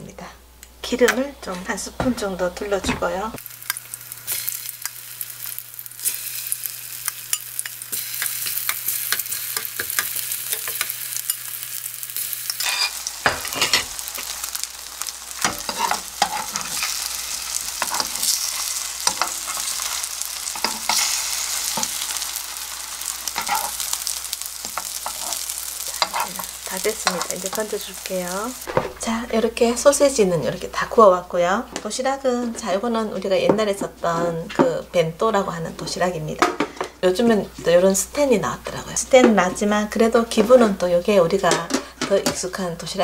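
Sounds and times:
sausage sizzling in oil: 0.9 - 30.9
metal spoon scraping pan: 7.3 - 11.6, 12.4 - 14.4, 15.4 - 22.3, 23.0 - 23.9, 24.6 - 27.8.

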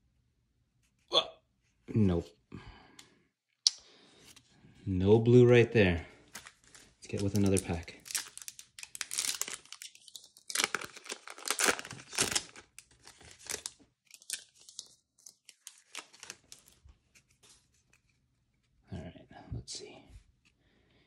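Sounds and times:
foil wrapper tearing and crinkling: 6.3 - 16.8.

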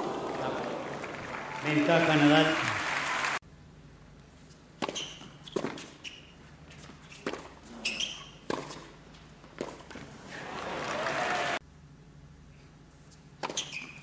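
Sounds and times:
crowd noise: 0.0 - 3.4, 10.3 - 11.6
racket striking tennis ball: 4.8 - 6.0, 6.8 - 10.1, 13.4 - 14.0
shoe squeaks on court: 4.8 - 8.9, 13.4 - 14.0.

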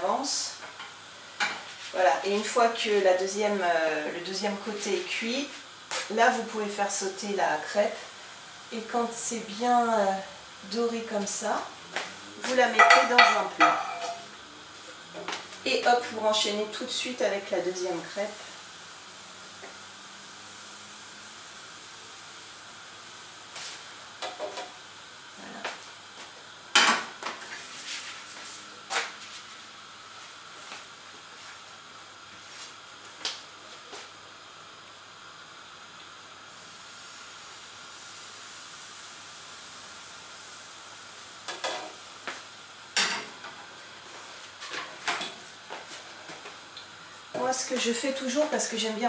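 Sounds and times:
batter sizzling in pan: 0.0 - 49.0
utensils knocking on pans: 12.7 - 14.3.

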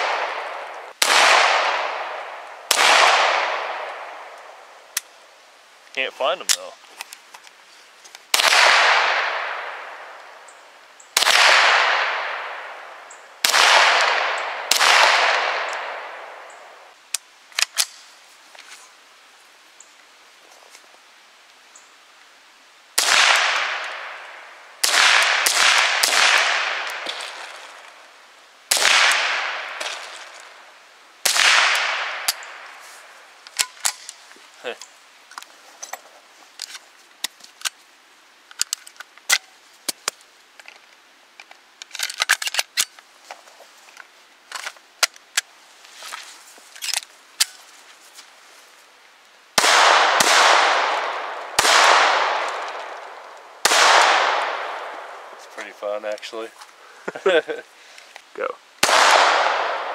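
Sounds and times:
rifle shots echoing: 0.0 - 4.3, 8.3 - 10.2, 11.2 - 16.7, 23.0 - 27.6, 28.7 - 30.2, 31.2 - 32.7, 49.6 - 55.4, 58.8 - 59.9
metallic clicks of gun handling: 17.1 - 18.0, 33.4 - 34.2, 38.5 - 43.0, 43.9 - 45.5.

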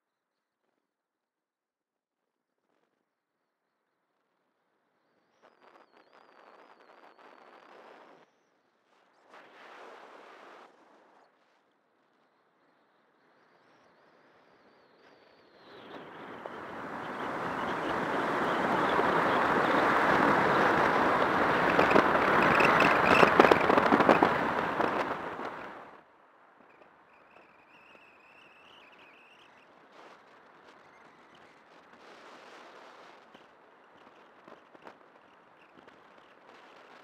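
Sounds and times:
faint road noise: 15.6 - 37.0
wind buffeting microphone: 15.7 - 26.0.

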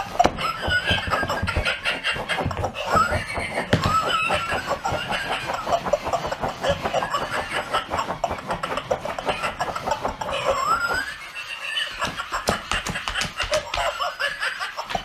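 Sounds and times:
plush dog toy laughing: 0.0 - 15.0.

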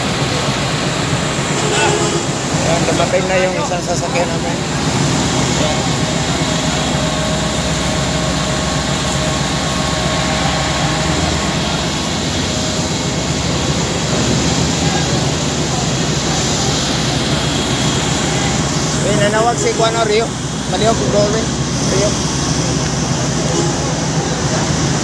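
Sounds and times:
loud rushing roar: 0.0 - 25.0
faint steady tones: 1.4 - 10.2.

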